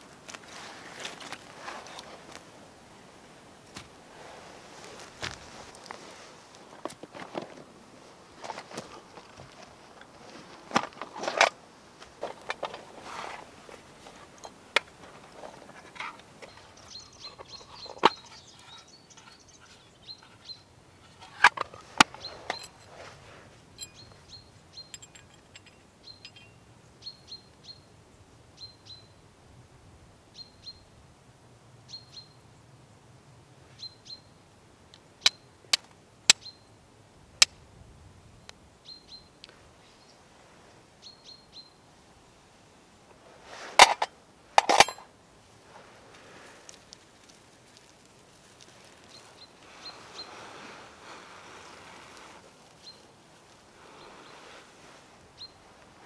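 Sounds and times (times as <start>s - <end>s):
small bird chirping: 16.4s - 22.8s, 23.8s - 27.9s, 49.0s - 50.4s, 52.7s - 53.1s
steel striking flint: 23.8s - 24.2s, 24.8s - 26.6s, 43.8s - 45.1s.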